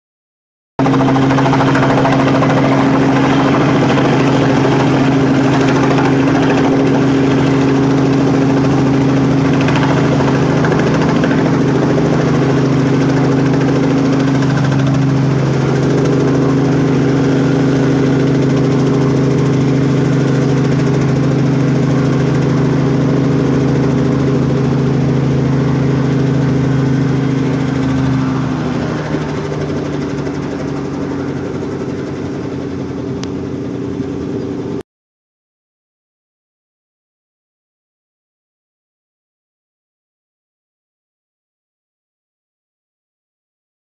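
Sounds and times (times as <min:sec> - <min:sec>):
helicopter rotors and engine: 0:00.8 - 0:34.8.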